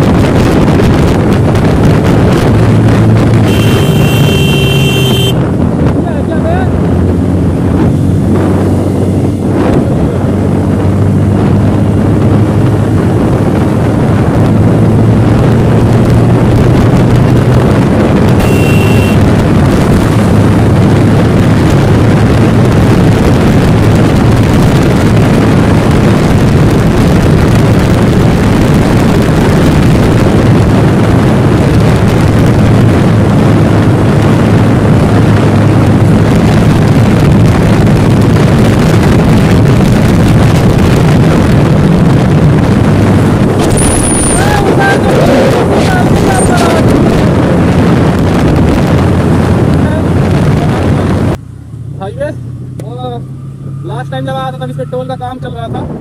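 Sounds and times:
motorcycle engine running: 0.0 - 53.8
wind rush on microphone: 0.0 - 54.6, 55.2 - 56.0
brief high beep: 18.4 - 19.2.

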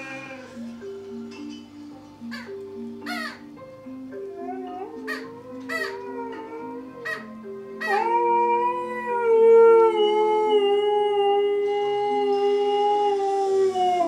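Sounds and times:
puppy howling: 4.2 - 14.0.

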